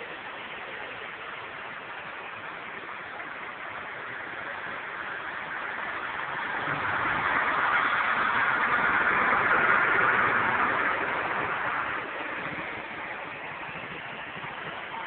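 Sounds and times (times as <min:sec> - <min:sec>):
truck engine driving past: 0:06.0 - 0:14.2.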